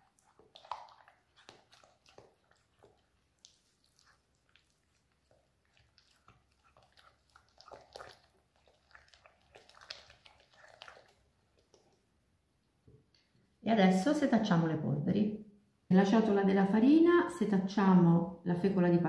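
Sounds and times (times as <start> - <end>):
fork beating pulp in glass bowl: 0.0 - 12.0.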